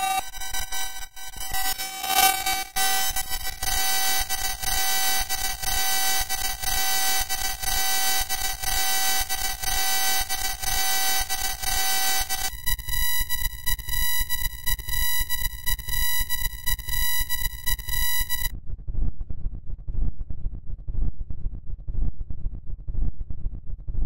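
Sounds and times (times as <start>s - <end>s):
dense chord of electronic tones: 0.0s - 12.5s.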